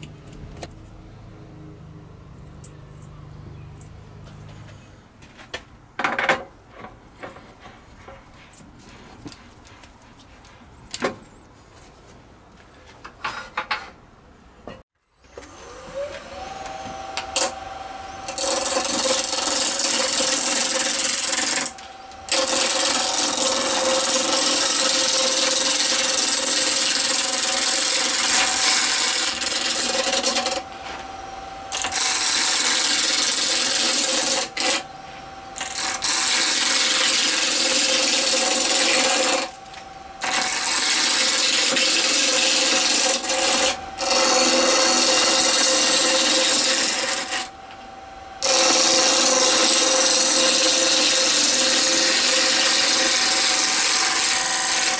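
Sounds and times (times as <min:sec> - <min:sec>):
lathe tool cutting with hiss: 0:15.4 - 0:39.6, 0:40.2 - 0:47.6, 0:48.4 - 0:54.9
lathe motor humming: 0:15.4 - 0:54.9.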